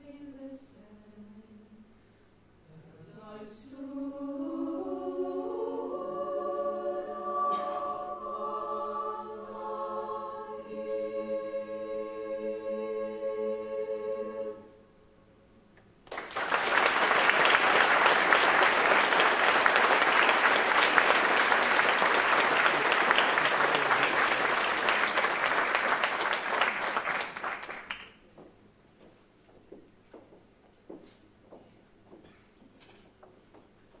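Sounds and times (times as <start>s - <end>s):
choir holding a chord: 2.8s - 15.0s, 17.2s - 27.3s
audience applause: 16.0s - 28.2s.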